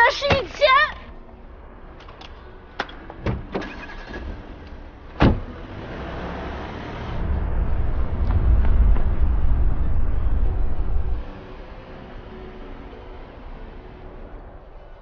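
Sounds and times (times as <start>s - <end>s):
car engine and tyres: 0.0s - 15.0s
car door shutting: 5.2s - 5.5s.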